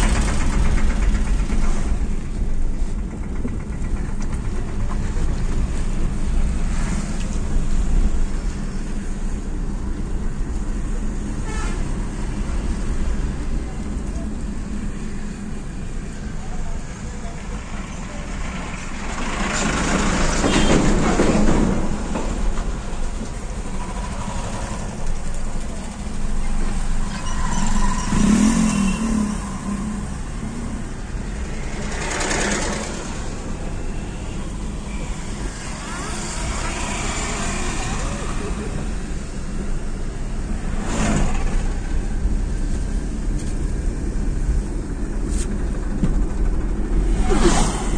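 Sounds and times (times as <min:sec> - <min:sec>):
car road noise: 0:00.0 - 0:47.9
truck passing close: 0:17.0 - 0:47.9
passing car whoosh: 0:46.8 - 0:47.9.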